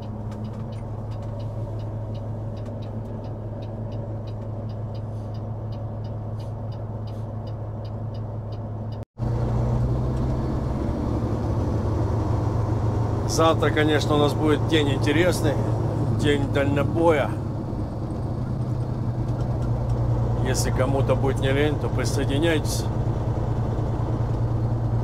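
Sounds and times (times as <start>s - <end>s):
light ticking: 0.0s - 9.0s
diesel truck engine: 0.0s - 25.0s.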